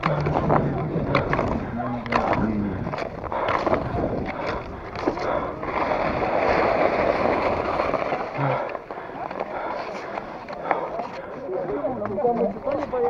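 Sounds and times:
wind on microphone: 0.2s - 8.0s
ski and pole strokes on snow: 5.0s - 8.5s.

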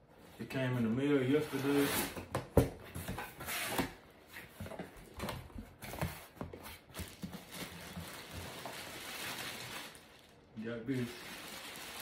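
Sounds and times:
plastic wrapping crackling: 6.9s - 12.0s.

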